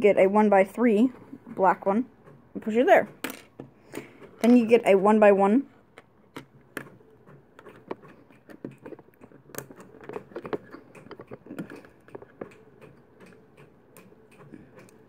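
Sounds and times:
plastic pieces clicking: 7.6s - 12.6s.

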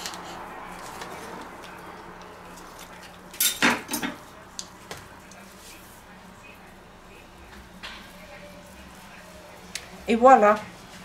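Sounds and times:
kitchenware clattering: 3.3s - 4.3s.

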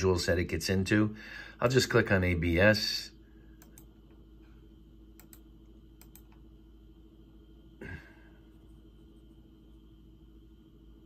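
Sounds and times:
low steady laptop hum: 0.0s - 11.0s
faint computer mouse clicks: 3.6s - 3.9s, 5.2s - 6.4s.

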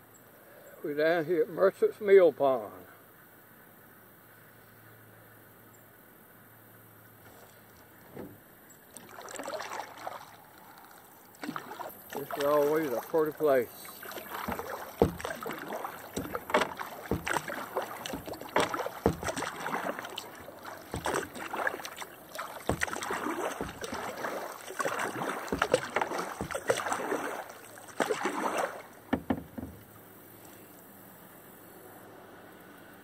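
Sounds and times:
paddle strokes splashing water: 7.2s - 30.7s
water drips: 8.7s - 29.9s
light knocks: 14.0s - 27.0s, 29.1s - 30.0s.

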